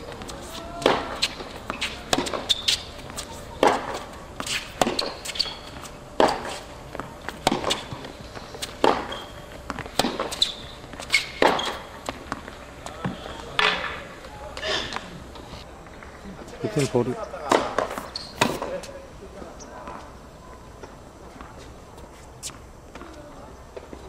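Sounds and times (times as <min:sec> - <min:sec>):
tennis racket hitting ball: 0:00.1 - 0:12.4
tennis ball bouncing: 0:00.1 - 0:13.9
shoe squeaks: 0:00.3 - 0:06.7, 0:07.7 - 0:09.5, 0:10.2 - 0:11.9, 0:18.0 - 0:18.6.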